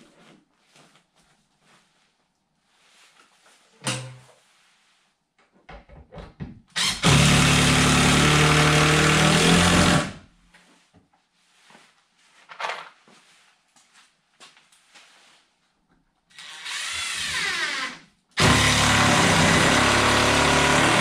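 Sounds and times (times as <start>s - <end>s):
power tool running: 6.8s - 10.2s, 16.4s - 21.0s.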